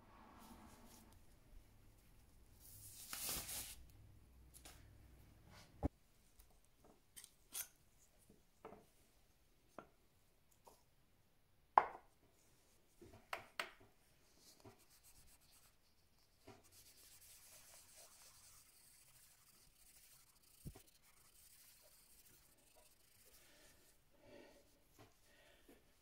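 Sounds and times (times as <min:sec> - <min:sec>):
soft rubbing of polishing pad: 0:14.2 - 0:25.9.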